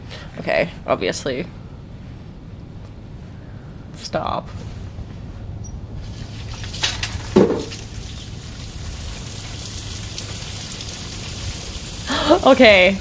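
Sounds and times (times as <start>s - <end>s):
water spray pattering: 6.0s - 13.0s.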